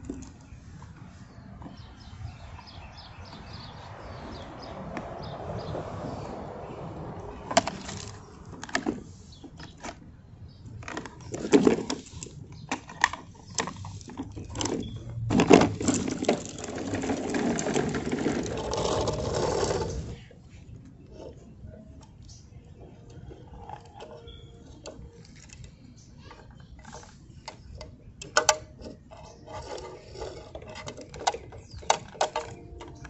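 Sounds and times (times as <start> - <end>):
toy parts rattling: 10.8 - 20.1, 29.1 - 33.0
plastic toy clicks and knocks: 26.3 - 33.0.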